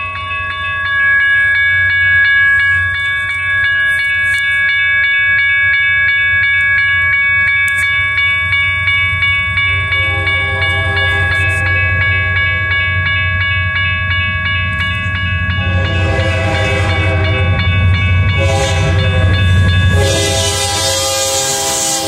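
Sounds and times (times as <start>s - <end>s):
crossing bell ringing: 0.0s - 22.0s
diesel locomotive rumble: 7.7s - 22.0s
locomotive horn blasts: 9.9s - 12.7s, 15.6s - 22.0s.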